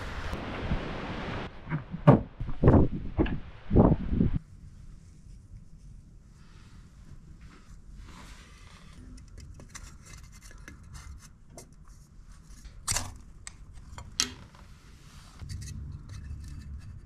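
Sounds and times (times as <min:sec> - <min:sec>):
wooden sticks scraping and clacking: 0:15.4 - 0:17.0.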